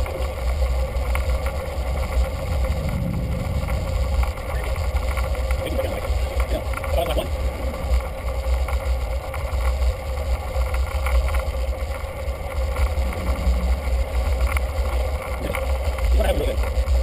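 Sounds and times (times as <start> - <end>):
faint steady hum: 0.0 - 17.0
wind buffeting microphone: 0.8 - 10.1.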